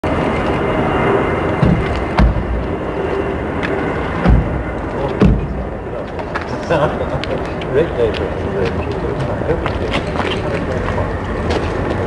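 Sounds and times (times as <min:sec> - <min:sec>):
outdoor background noise: 0:00.0 - 0:12.0
car doors thumping shut: 0:01.6 - 0:02.6, 0:04.2 - 0:04.6.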